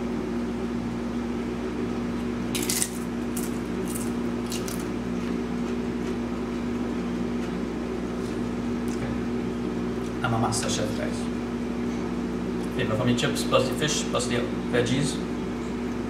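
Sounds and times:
tortilla chip crunching: 0:02.5 - 0:06.2.

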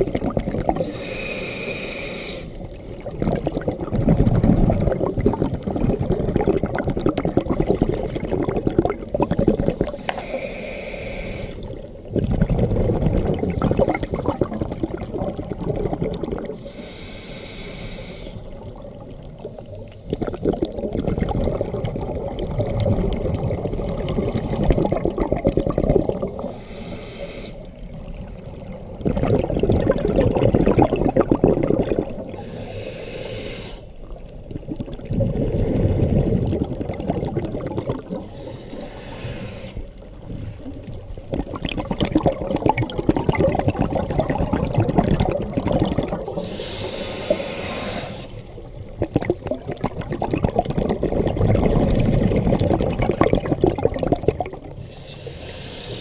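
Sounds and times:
exhaled bubbles rushing: 0:00.0 - 0:01.0, 0:02.6 - 0:10.0, 0:11.6 - 0:16.7, 0:18.4 - 0:26.6, 0:27.7 - 0:32.5, 0:34.0 - 0:38.8, 0:39.9 - 0:47.4, 0:48.4 - 0:54.8
regulator inhalation hiss: 0:00.8 - 0:02.6, 0:09.8 - 0:11.7, 0:16.6 - 0:18.6, 0:24.2 - 0:24.9, 0:26.3 - 0:27.7, 0:32.4 - 0:34.0, 0:38.2 - 0:40.0, 0:46.3 - 0:48.5, 0:54.8 - 0:56.0.

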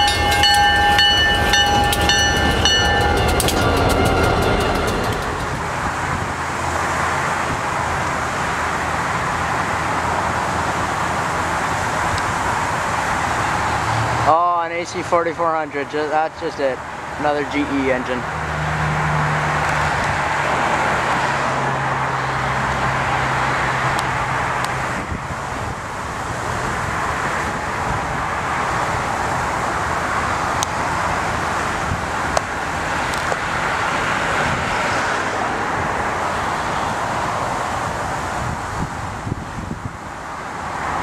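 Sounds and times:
train wheels rumbling on rails: 0:00.0 - 0:08.6.

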